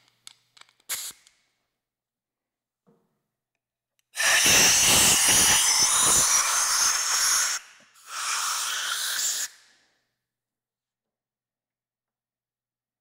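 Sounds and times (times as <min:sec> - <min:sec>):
compressed air blow gun hissing: 0:04.2 - 0:09.5.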